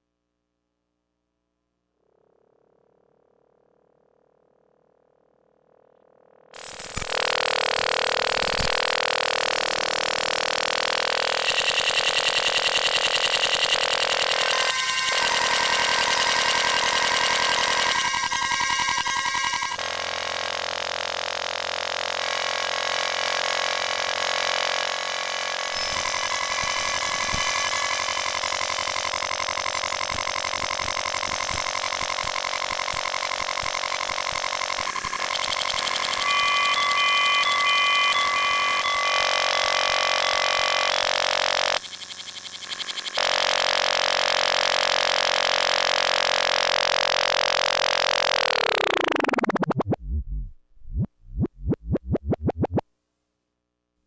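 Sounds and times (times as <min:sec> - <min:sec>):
tape deck rewinding whirr: 0:25.7 - 0:43.2, 0:44.4 - 0:52.8.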